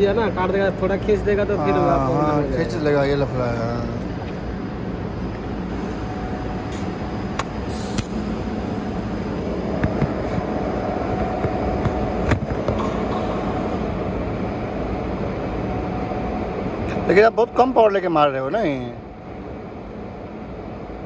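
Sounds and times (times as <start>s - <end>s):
faint steady whine: 0.0s - 21.0s
welding arc hiss and buzz: 3.3s - 12.7s.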